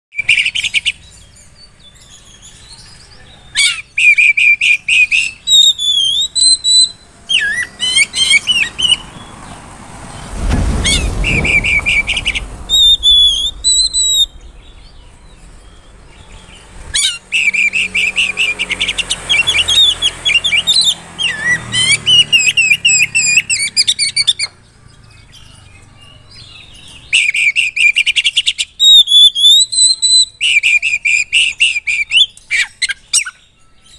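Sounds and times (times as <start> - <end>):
songbird singing varied phrases: 0.1 - 9.6
low rumble: 9.0 - 17.1.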